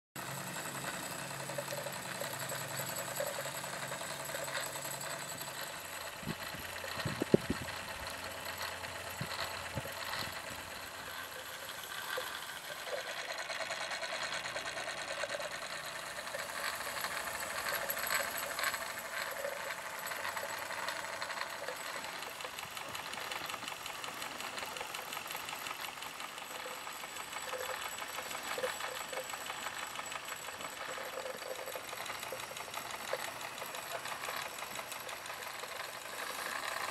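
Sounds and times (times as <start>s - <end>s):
toy steam engine chuffing: 0.2s - 36.9s.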